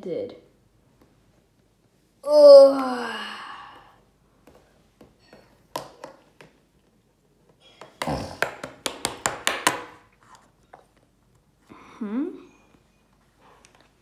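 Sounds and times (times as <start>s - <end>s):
plastic pieces tapping on wood: 7.8s - 10.0s.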